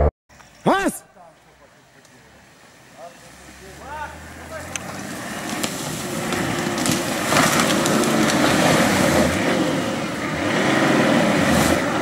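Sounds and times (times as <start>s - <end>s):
off-road vehicle engine under load: 3.0s - 12.0s.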